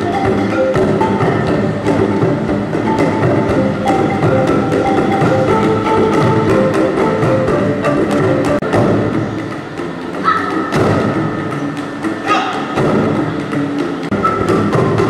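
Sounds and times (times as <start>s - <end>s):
tuned pipes struck with paddles: 0.0s - 15.0s.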